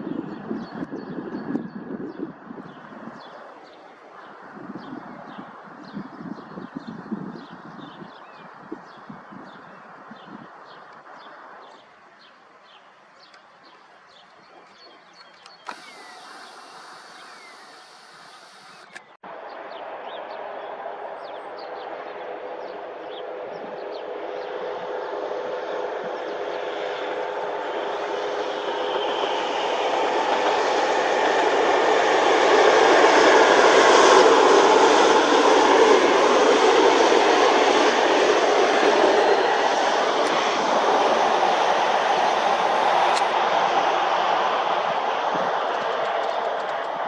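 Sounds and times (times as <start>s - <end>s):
train engine hum: 9.9s - 47.0s
wheels on rails: 14.3s - 19.2s.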